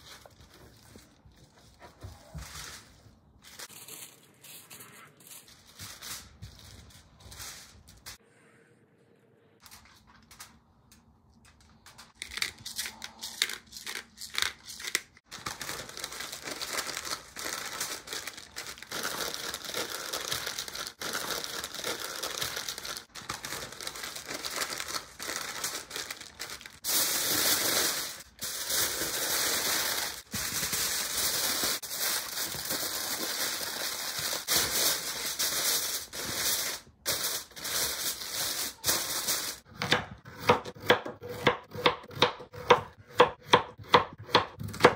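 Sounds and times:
foil and paper crinkling: 0.0s - 8.2s, 12.1s - 39.7s.

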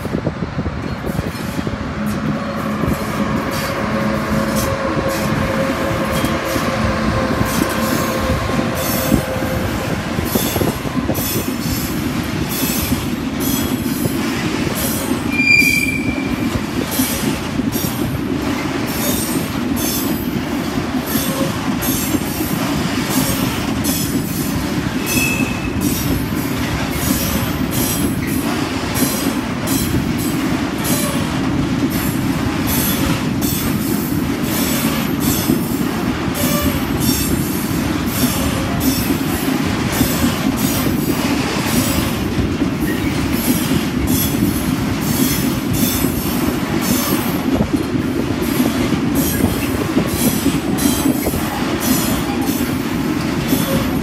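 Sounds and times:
locomotive passing: 0.0s - 54.0s
high wheel squeals: 15.3s - 16.4s.

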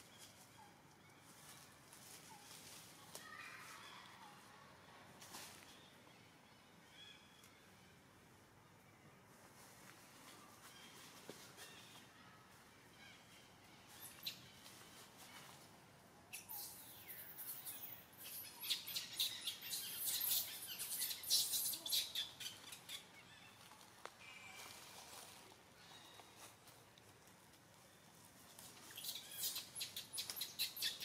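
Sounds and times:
forest ambience: 0.0s - 31.0s
high-pitched animal chirps and squeaks: 16.4s - 23.0s, 29.0s - 31.0s.

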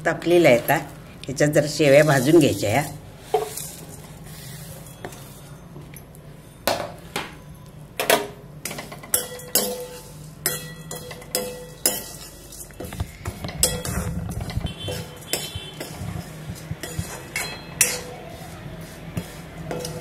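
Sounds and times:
spoon knocking on metal pan: 13.2s - 18.1s.

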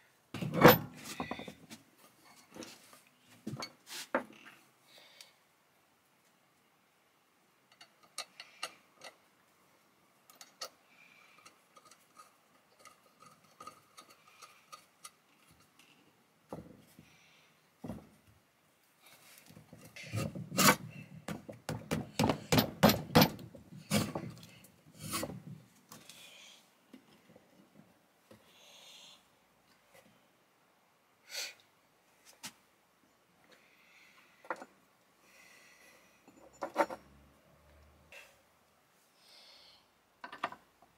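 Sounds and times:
metal parts clicking and scraping: 7.7s - 9.2s, 10.3s - 10.8s, 11.4s - 16.1s, 36.2s - 37.2s.

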